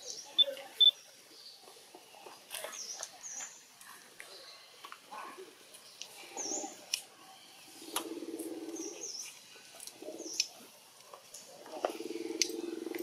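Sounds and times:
small birds chirping: 0.0 - 10.7.

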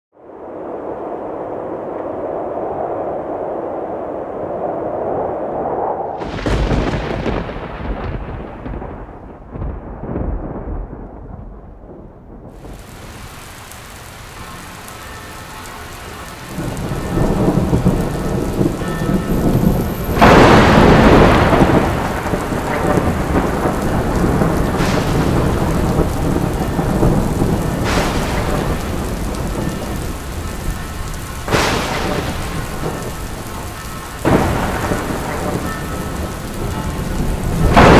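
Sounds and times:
thunder rumbling: 0.2 - 37.9
rain hissing: 0.3 - 9.0, 12.5 - 37.9
sharp thunder cracks: 6.2 - 14.5, 16.4 - 37.9.

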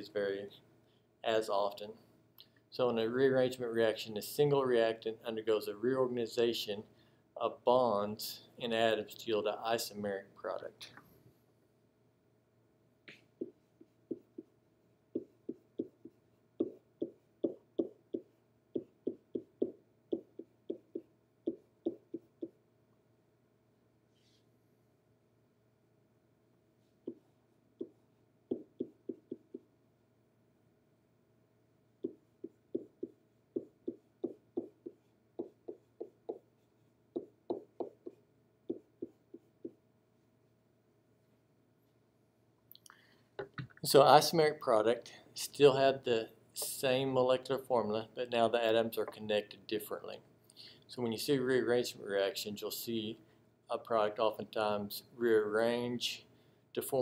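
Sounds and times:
pen tapping on whiteboard: 13.1 - 22.6, 27.8 - 29.7, 32.0 - 36.5, 37.1 - 39.8.

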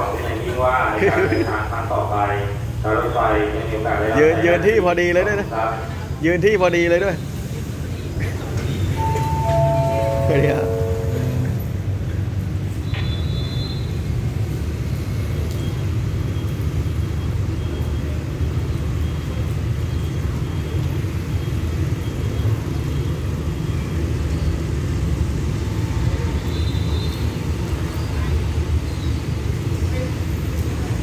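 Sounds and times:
train coaches rumbling: 0.0 - 12.8.

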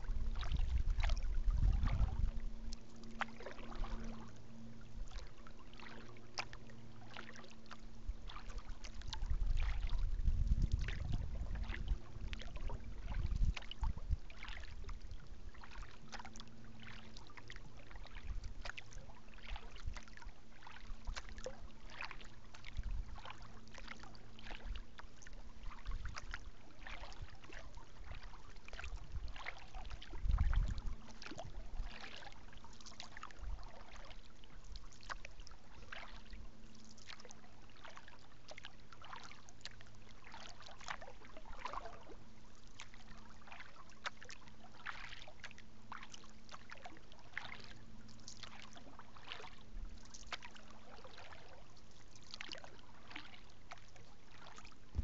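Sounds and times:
wind on microphone: 0.0 - 2.6, 8.9 - 15.0, 28.9 - 31.9
water splashing off paddle: 0.3 - 4.3, 5.0 - 24.8, 25.6 - 34.2, 48.3 - 51.6.

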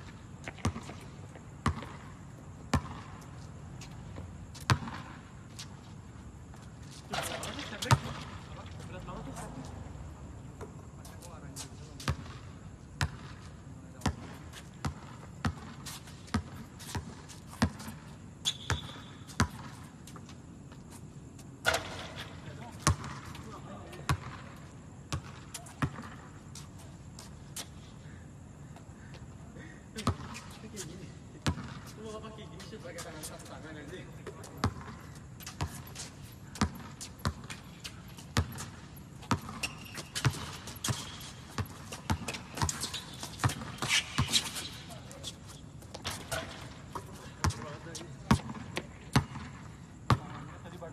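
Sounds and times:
basketball bouncing on court: 0.5 - 2.1, 2.7 - 3.2, 4.6 - 5.2, 13.0 - 13.3, 14.0 - 19.8, 22.8 - 26.3, 30.0 - 30.4, 31.4 - 31.9, 34.6 - 35.8, 36.6 - 44.7, 45.9 - 50.5
high steady squeal: 18.4 - 19.3, 39.6 - 41.5
shoe squeak: 18.4 - 19.6, 37.0 - 47.7.

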